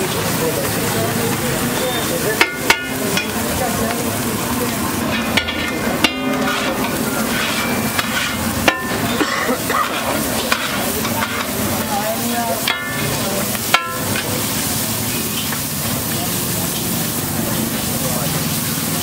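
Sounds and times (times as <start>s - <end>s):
frying sizzle: 0.0s - 19.0s
spatula scraping on griddle: 1.7s - 15.7s
spatula clanking on griddle: 1.7s - 17.0s.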